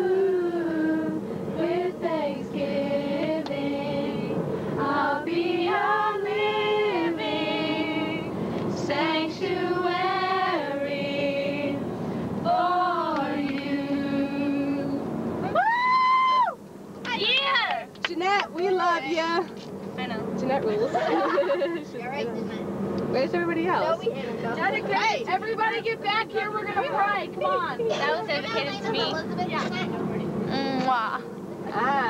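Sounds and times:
women singing long notes: 0:00.0 - 0:15.1.

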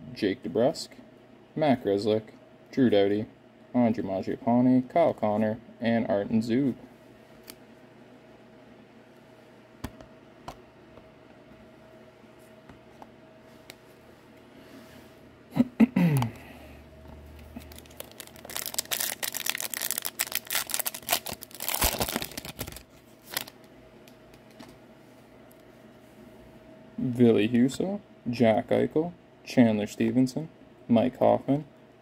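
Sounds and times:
foil wrapper tearing and crinkling: 0:17.6 - 0:23.6.

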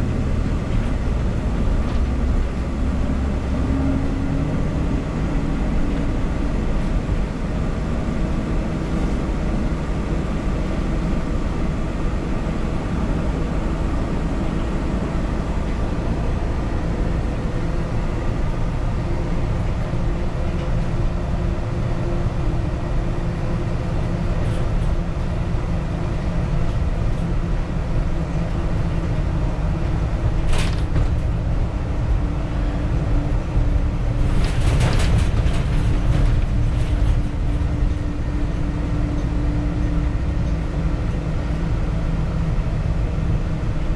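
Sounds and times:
bus engine and road rumble: 0:00.0 - 0:43.9.

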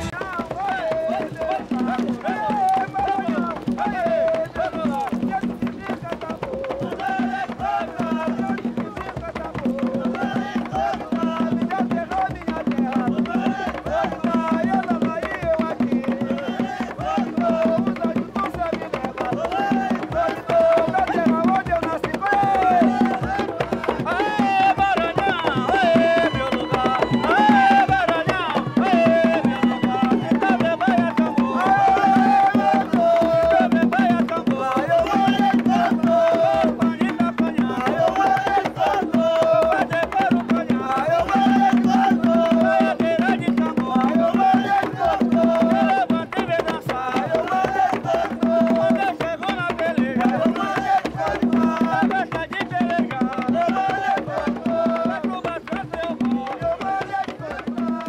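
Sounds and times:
hand drums beating: 0:00.0 - 0:58.0
voices singing a melody: 0:00.0 - 0:58.0.

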